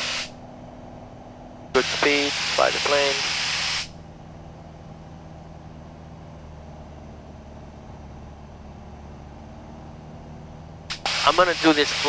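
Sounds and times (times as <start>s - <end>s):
light airplane engine droning: 0.0s - 12.0s.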